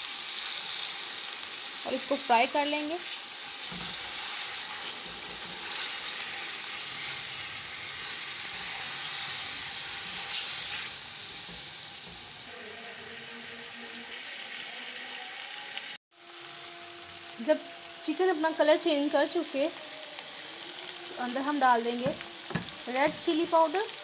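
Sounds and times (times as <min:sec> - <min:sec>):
chicken sizzling in hot fat: 0:00.0 - 0:24.0
spatula stirring: 0:03.3 - 0:12.5.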